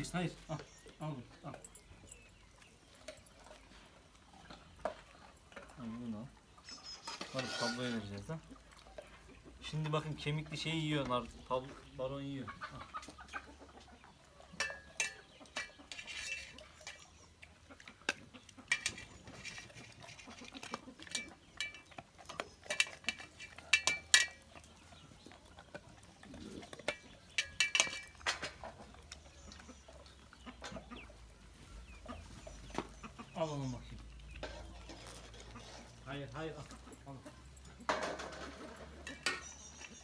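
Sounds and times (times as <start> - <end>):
food dish clinking: 14.6 - 17.1, 21.0 - 24.6, 26.8 - 28.6.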